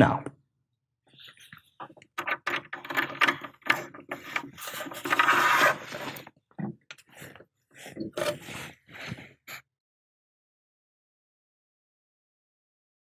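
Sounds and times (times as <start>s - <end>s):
cable scraping against plastic: 1.2s - 9.6s.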